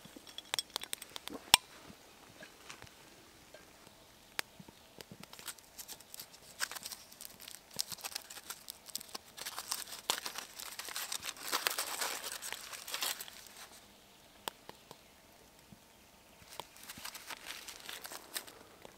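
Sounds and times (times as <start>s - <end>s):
aluminium foil crinkling: 5.1s - 13.9s, 16.4s - 18.9s.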